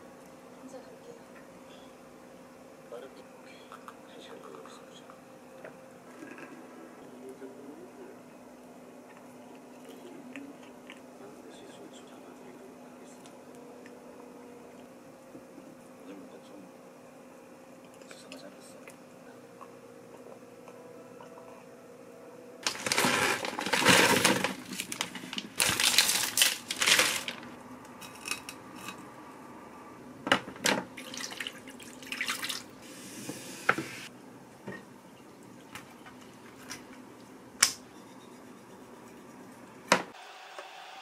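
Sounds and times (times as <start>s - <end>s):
wet handling noises: 22.6s - 27.5s
tap water running and splashing: 31.0s - 34.0s.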